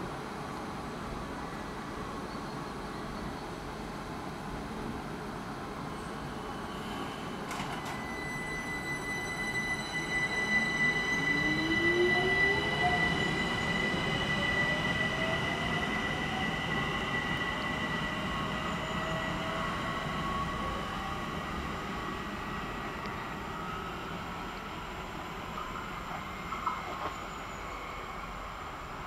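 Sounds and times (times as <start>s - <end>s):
train rolling rumble: 3.0s - 29.0s
steady high tone: 7.9s - 22.6s.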